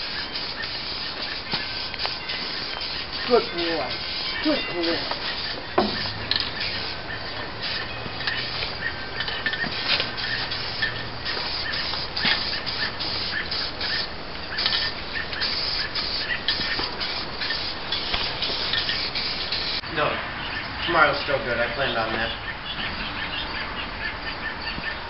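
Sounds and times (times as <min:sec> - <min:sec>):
spray can hissing: 0:00.0 - 0:07.0, 0:07.6 - 0:19.8.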